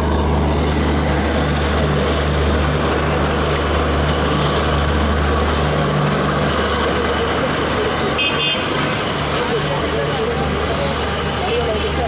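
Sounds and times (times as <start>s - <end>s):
diesel locomotive engine droning: 0.0s - 12.0s.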